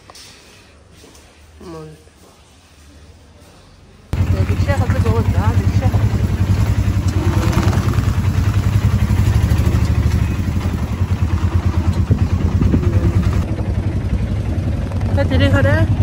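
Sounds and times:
auto-rickshaw engine chugging: 4.2 - 16.0.

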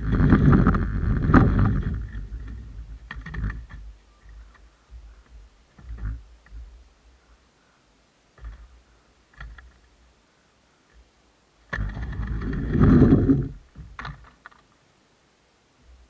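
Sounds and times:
skateboard rolling and rattling: 0.0 - 3.9, 11.8 - 14.5.

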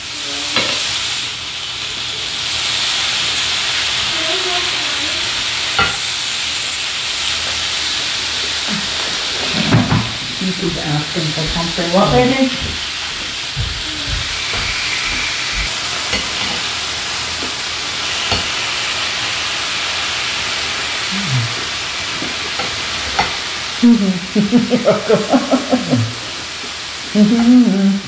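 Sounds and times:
meat sizzling on grill pan: 0.0 - 28.0
voices and laughter: 23.8 - 26.3.

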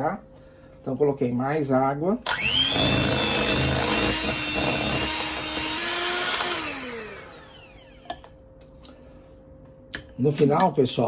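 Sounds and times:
mixer motor spinning down: 2.3 - 8.1
electric hand mixer whine: 2.3 - 8.2.

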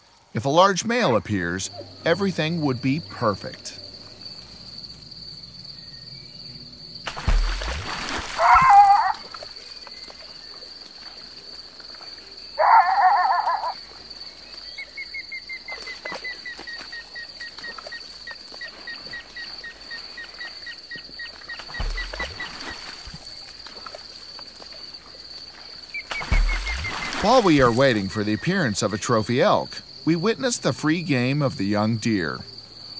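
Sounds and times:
high insect trill: 0.0 - 32.9
elk bugling: 12.6 - 13.8.

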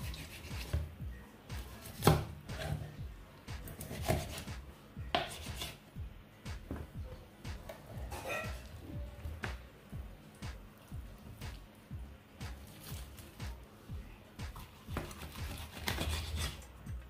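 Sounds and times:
knife cutting raw chicken: 1.6 - 2.8, 3.6 - 4.6, 14.6 - 16.7.

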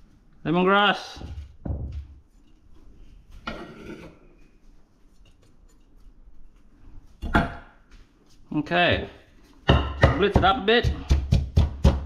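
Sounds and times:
scraping rustling sound: 2.2 - 7.2.

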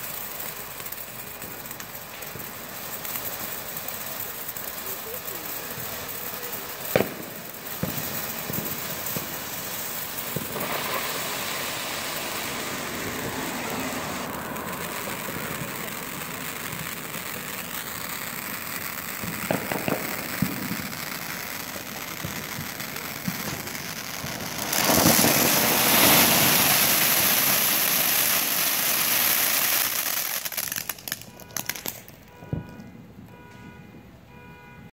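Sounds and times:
firework fountain hissing and crackling: 0.0 - 32.4
firework pop: 19.2 - 20.8.

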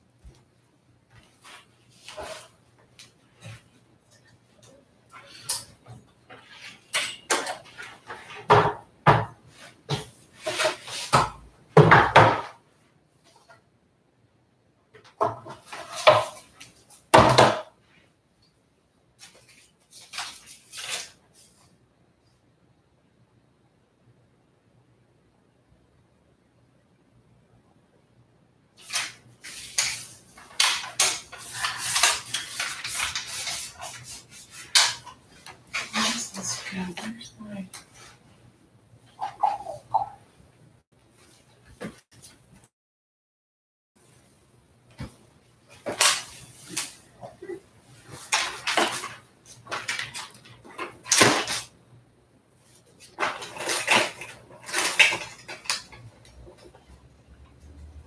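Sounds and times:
objects knocking on shelves: 7.0 - 12.6, 17.1 - 17.8.

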